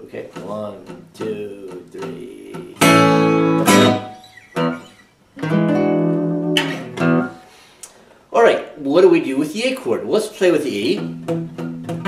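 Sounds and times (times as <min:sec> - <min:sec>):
acoustic guitar fingerpicked blues: 0:00.2 - 0:07.4, 0:10.9 - 0:12.0.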